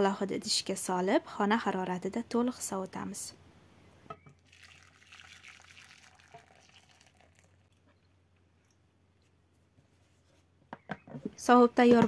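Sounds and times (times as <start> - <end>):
liquid pouring into glass dish: 4.4 - 7.9.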